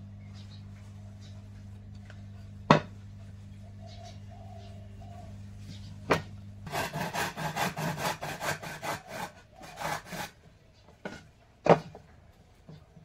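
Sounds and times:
hand tool working wood: 0:06.7 - 0:13.0.

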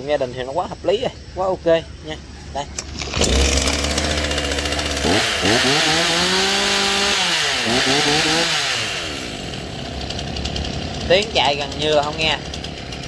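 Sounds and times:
chainsaw revving: 0:02.8 - 0:13.0.

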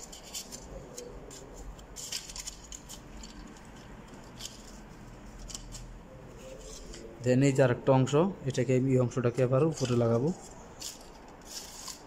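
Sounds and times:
light box parts clicking and scraping: 0:00.0 - 0:05.9.

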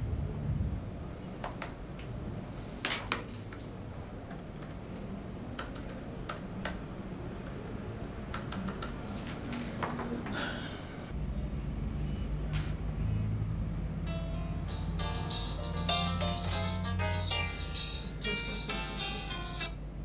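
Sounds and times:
low background hum: 0:00.0 - 0:20.0
keyboard typing clicks: 0:05.6 - 0:06.8, 0:07.4 - 0:09.0.

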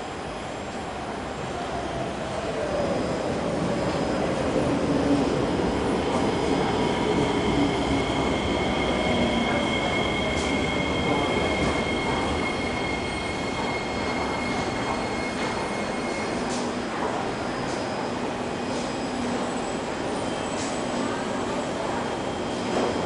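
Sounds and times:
metro train equipment running: 0:00.0 - 0:23.0.

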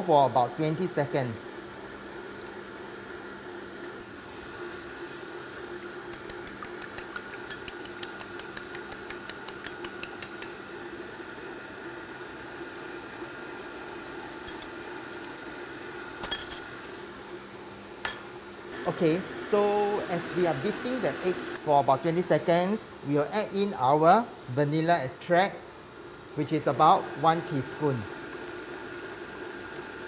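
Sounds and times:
utensil beating egg in bowl: 0:04.5 - 0:10.7, 0:14.3 - 0:15.4
stand mixer running: 0:18.8 - 0:21.6.

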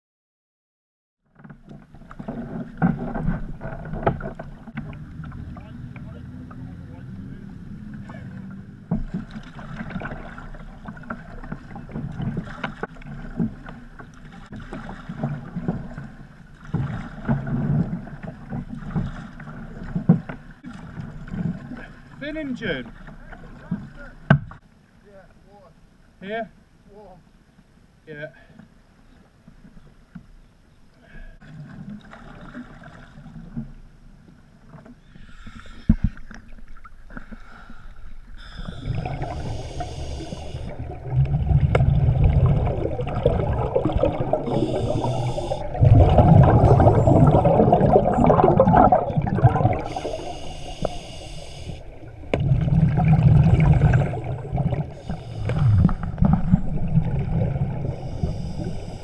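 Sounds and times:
regulator hissing inhalations: 0:35.0 - 0:36.2, 0:37.3 - 0:40.7, 0:44.4 - 0:45.8, 0:49.8 - 0:52.0, 0:54.9 - 0:56.1, 0:57.9 - 0:59.0
rumbling exhaled bubbles: 0:35.9 - 0:59.0.

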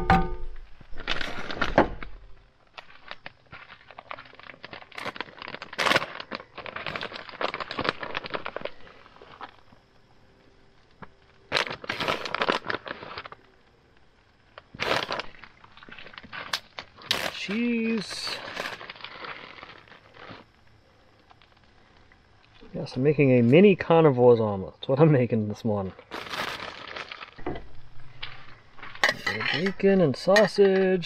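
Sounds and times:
plastic bag crinkling: 0:00.9 - 0:09.6, 0:11.4 - 0:13.5, 0:14.5 - 0:20.5, 0:25.8 - 0:27.4.

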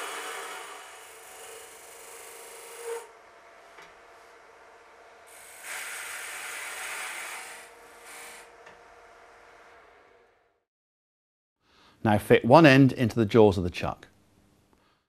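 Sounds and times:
lathe motor hum: 0:00.0 - 0:10.3.

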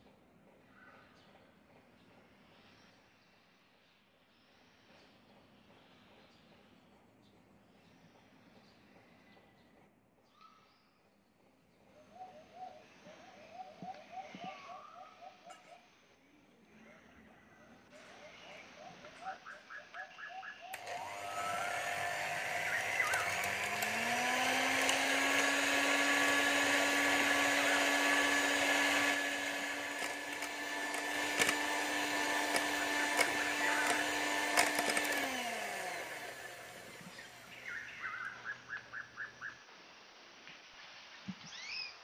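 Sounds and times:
electric hand mixer whining: 0:20.7 - 0:37.6.

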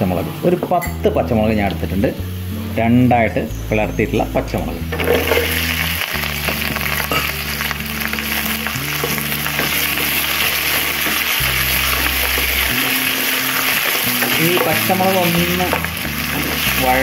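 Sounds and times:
background music low notes: 0:00.0 - 0:17.0
chillies sizzling in oil: 0:00.0 - 0:17.0.

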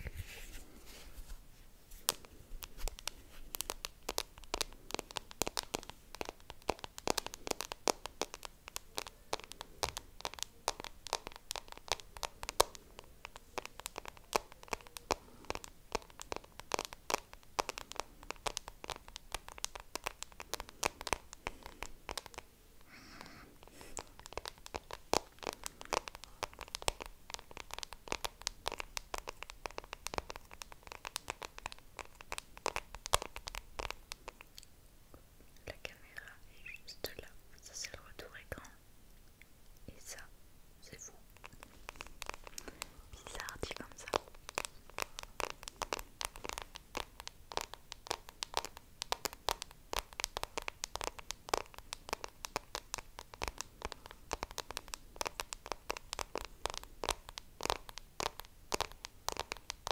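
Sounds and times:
faint breath: 0:22.8 - 0:24.2
wet lip and tongue clicks: 0:23.2 - 0:34.7, 0:40.9 - 0:59.9.

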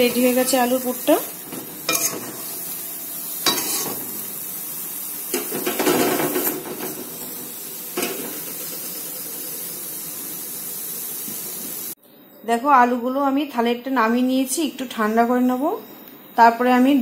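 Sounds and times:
steady hiss: 0:00.0 - 0:12.0
spatula scraping frying pan: 0:01.5 - 0:02.5, 0:03.4 - 0:04.1.

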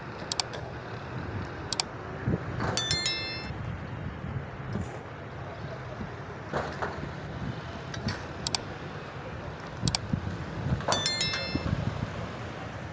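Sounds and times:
sharp knocks and clicks: 0:00.2 - 0:00.5
ringing metallic clink: 0:02.8 - 0:03.6, 0:10.9 - 0:11.8.

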